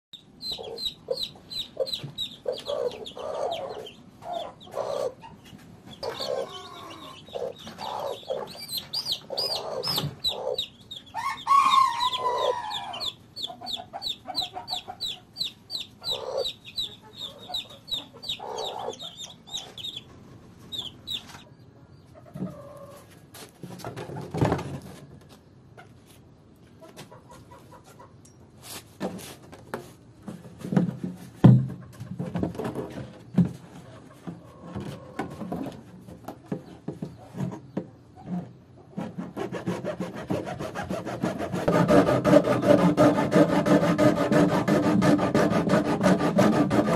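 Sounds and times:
chicks peeping: 0:00.2 - 0:23.2, 0:25.0 - 0:28.2, 0:32.9 - 0:39.0
hens clucking: 0:00.2 - 0:24.3, 0:25.7 - 0:28.2, 0:31.7 - 0:39.0.

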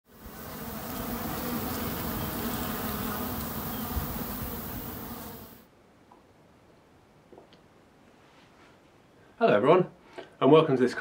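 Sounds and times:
honeybees buzzing: 0:00.1 - 0:05.6.

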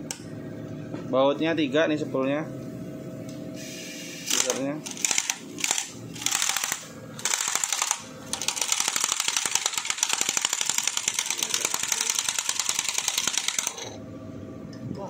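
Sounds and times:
impact wrench hammering: 0:04.9 - 0:14.0.

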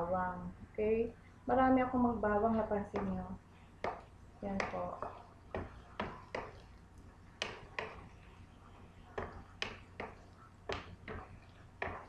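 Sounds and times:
onions sauteing in oil: 0:02.7 - 0:12.0
wooden spatula tapping frying pan: 0:03.8 - 0:06.8, 0:07.4 - 0:08.4, 0:09.1 - 0:12.0.

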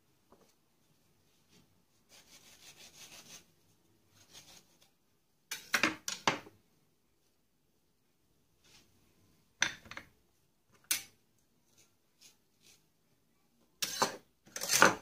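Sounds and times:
kitchen utensils scraping: 0:13.8 - 0:15.0.

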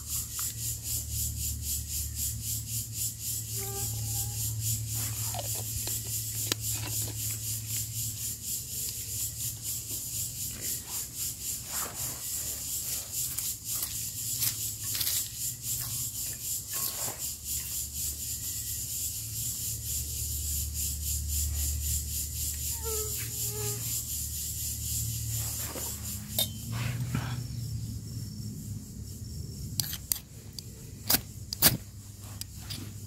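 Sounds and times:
high-pitched insect drone: 0:00.0 - 0:31.5
rubbing and scraping: 0:04.8 - 0:07.6, 0:10.5 - 0:15.4, 0:25.2 - 0:27.4.

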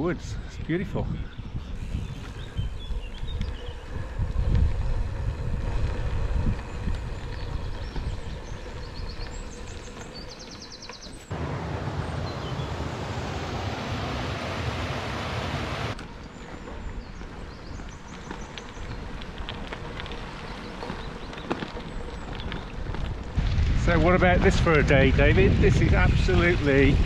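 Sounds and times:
wind buffeting microphone: 0:00.2 - 0:10.4, 0:11.3 - 0:27.0
bicycle tyres rumbling: 0:01.2 - 0:27.0.

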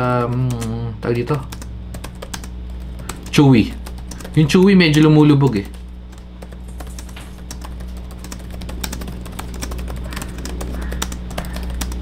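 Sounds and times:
laptop keyboard typing: 0:00.0 - 0:12.0.

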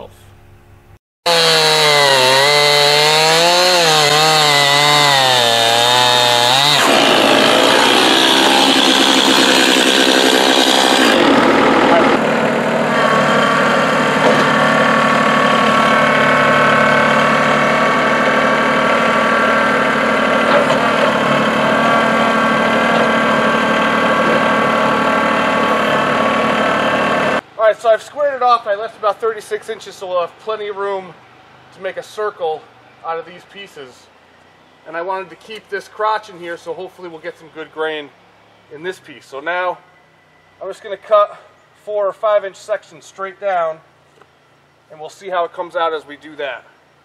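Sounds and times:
chainsaw cutting log: 0:01.3 - 0:27.4
diesel tractor engine running: 0:01.3 - 0:27.4.

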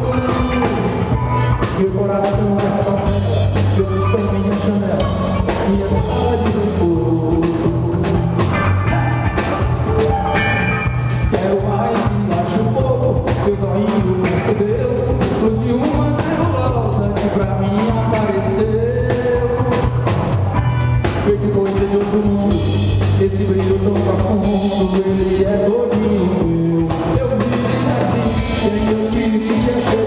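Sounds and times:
rock band playing: 0:00.0 - 0:30.0.

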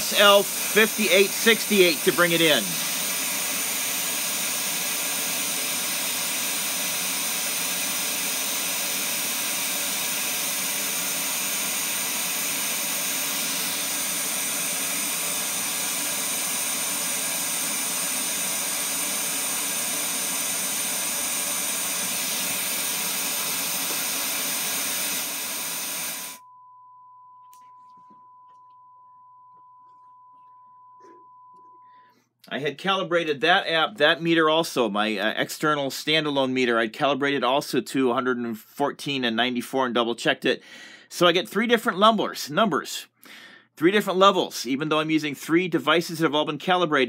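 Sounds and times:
faint steady high tone: 0:26.4 - 0:32.2.

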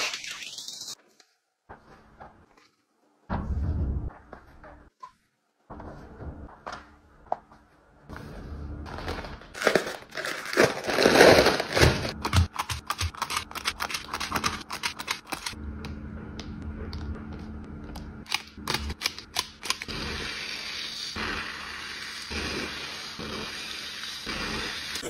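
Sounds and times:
plastic packaging crinkling: 0:08.9 - 0:14.7
scissors snipping plastic bags: 0:09.6 - 0:15.6.

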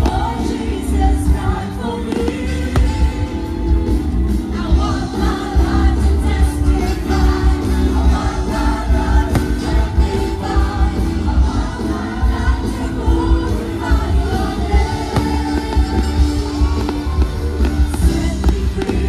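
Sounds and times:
choir-like group singing: 0:00.0 - 0:19.0.

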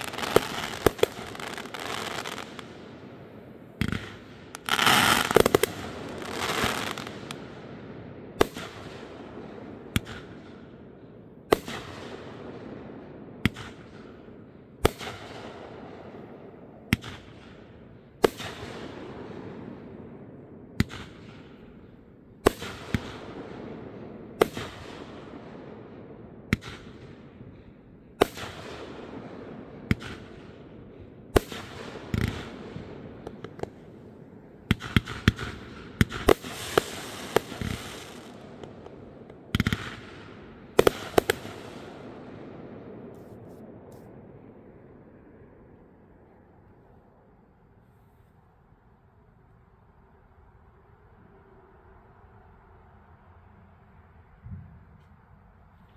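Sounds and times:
fireworks bangs: 0:00.0 - 0:07.7, 0:31.3 - 0:44.2
fireworks hiss: 0:36.3 - 0:38.5.

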